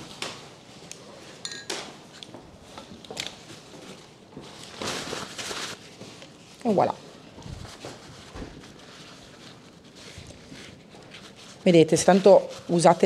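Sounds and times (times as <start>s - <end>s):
paper towel scrubbing glass: 7.5s - 13.0s.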